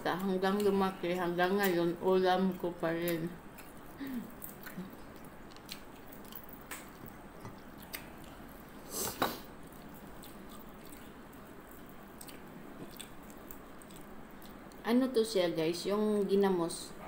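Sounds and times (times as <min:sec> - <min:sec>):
person chewing with mouth smacks: 0:03.0 - 0:14.8.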